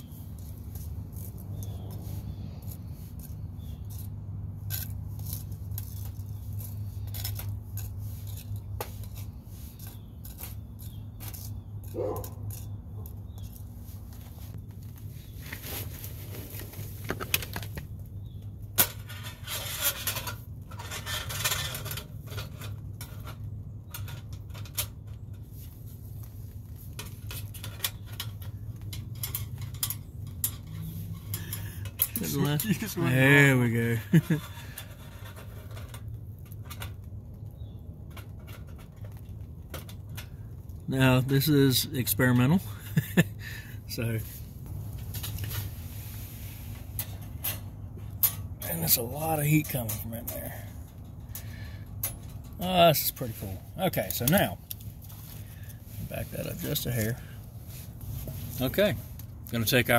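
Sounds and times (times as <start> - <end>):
metal tool scraping metal: 18.8 - 23.4, 27.2 - 36.1.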